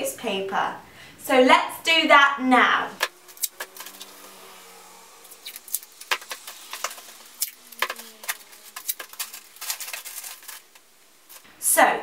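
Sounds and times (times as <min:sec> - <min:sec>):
newspaper rustling: 0:03.0 - 0:04.3, 0:05.4 - 0:11.5.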